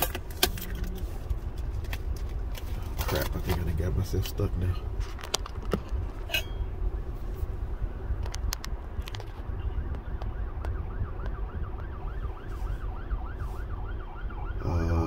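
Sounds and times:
low rumble inside car: 0:00.0 - 0:15.0
emergency siren wailing: 0:09.5 - 0:15.0.

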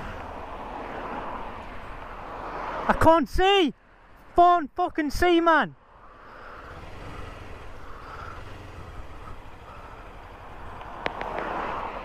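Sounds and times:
motorcycle engine rumble: 0:00.0 - 0:02.5, 0:05.8 - 0:12.0
road and wind noise: 0:00.0 - 0:12.0
sharp clicks: 0:10.7 - 0:11.6.

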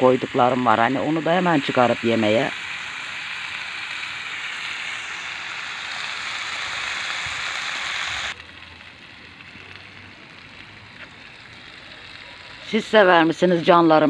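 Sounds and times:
peppers sizzling in a frying pan: 0:00.0 - 0:14.0.

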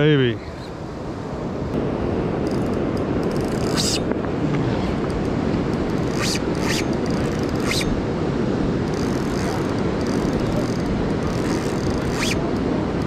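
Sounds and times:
river current rushing: 0:00.0 - 0:13.0
wind on microphone: 0:00.0 - 0:13.0
sharp high zips: 0:03.6 - 0:04.0, 0:06.0 - 0:08.0, 0:11.4 - 0:12.4.

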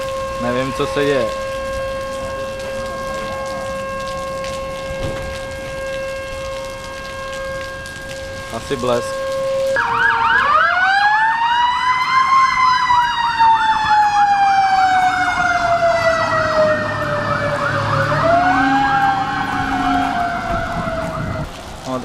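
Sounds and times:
siren slow wail: 0:00.0 - 0:21.8
siren fast warbling yelp: 0:00.3 - 0:21.5.

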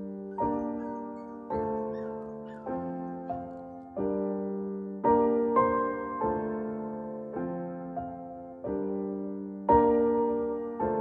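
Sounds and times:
soft piano chords: 0:00.0 - 0:11.0.

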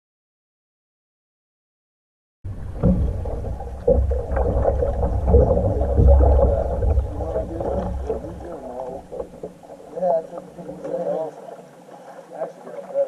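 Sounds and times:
low microphone rumble: 0:02.5 - 0:10.8
paddle strokes splashing: 0:02.5 - 0:13.0
water gurgling around kayak: 0:02.5 - 0:13.0.

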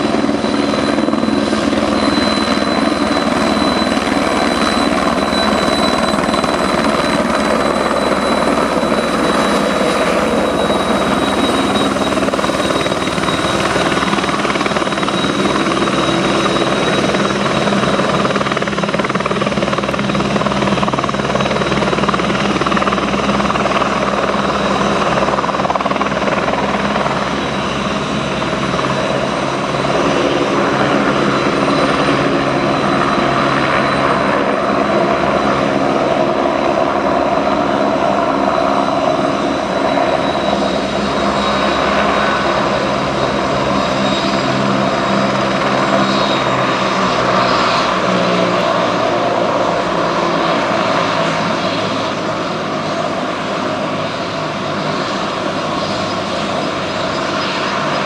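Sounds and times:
helicopter engine whine: 0:00.0 - 0:58.0
helicopter rotor noise: 0:00.0 - 0:58.0.

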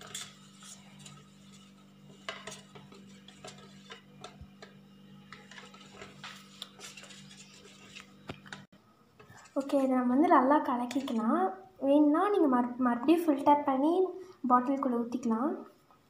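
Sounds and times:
spoon scraping steel bowl: 0:00.0 - 0:09.8, 0:10.9 - 0:11.2
steady low hum: 0:00.0 - 0:13.0.

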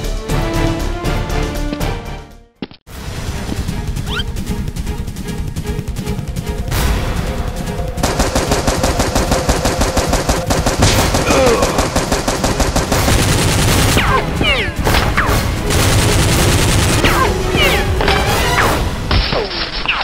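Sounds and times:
automatic gunfire sound effects: 0:08.0 - 0:18.8.

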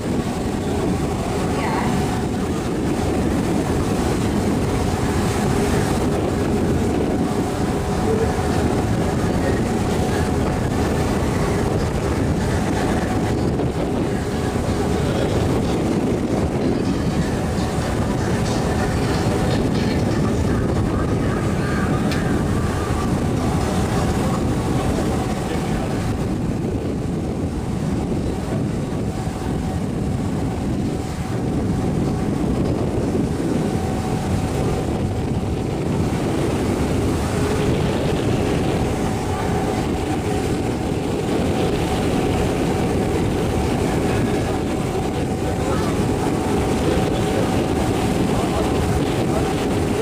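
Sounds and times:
boat engine running: 0:00.0 - 0:50.0
rushing water: 0:00.0 - 0:50.0
wind: 0:00.0 - 0:50.0.

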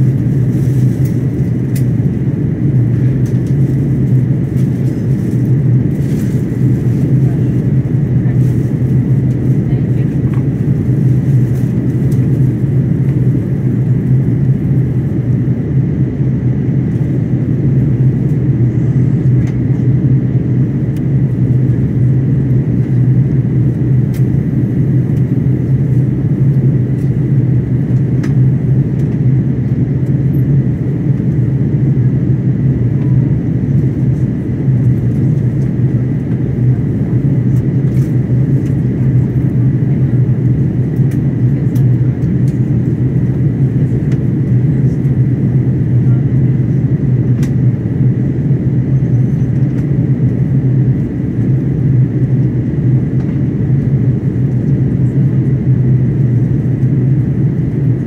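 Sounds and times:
airliner cabin drone: 0:00.0 - 0:58.0.

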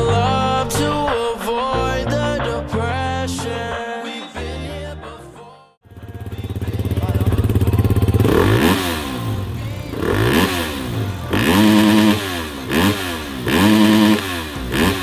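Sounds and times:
motorcycle engine idling and revving: 0:05.8 - 0:15.0.

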